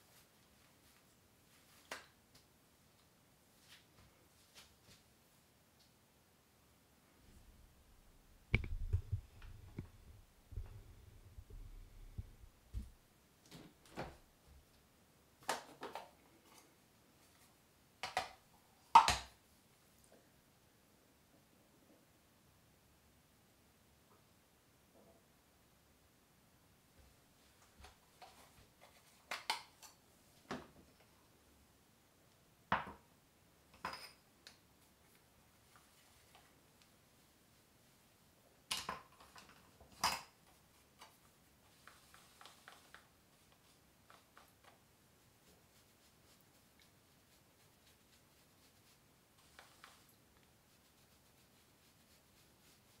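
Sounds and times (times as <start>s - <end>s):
muffled bumps of hair handling: 8.5s - 13.0s
hair rustling: 40.7s - 53.0s.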